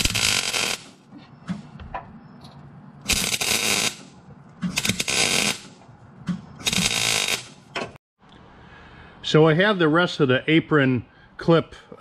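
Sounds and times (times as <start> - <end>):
welder arc crackling: 0.0 - 0.9, 3.1 - 4.0, 4.8 - 5.7, 6.6 - 7.6.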